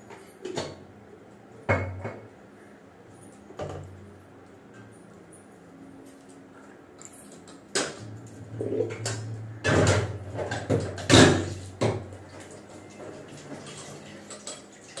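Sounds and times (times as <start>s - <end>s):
utensils and containers rattling: 6.2s - 15.0s.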